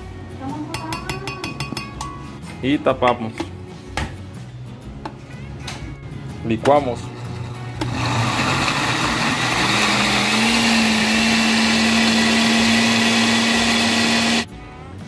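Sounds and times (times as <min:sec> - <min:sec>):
blender motor running: 0:07.1 - 0:14.5.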